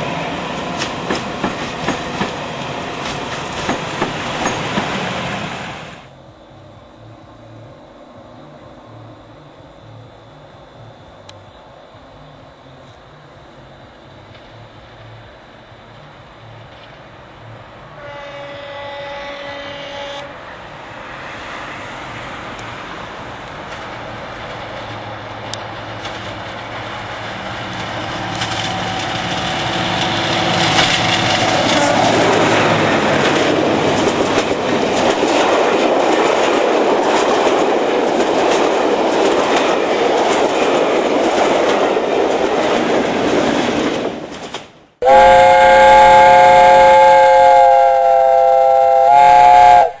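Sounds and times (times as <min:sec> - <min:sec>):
train wheels clattering on rails: 0:00.0 - 0:05.8, 0:22.6 - 0:44.8.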